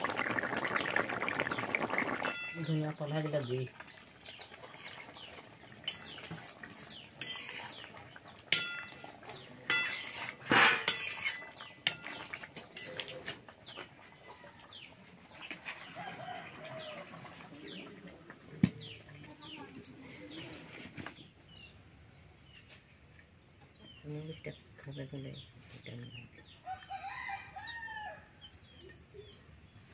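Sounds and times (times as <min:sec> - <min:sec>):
birds chirping: 0:01.3 - 0:29.9
spatula scraping metal pan: 0:05.9 - 0:13.1.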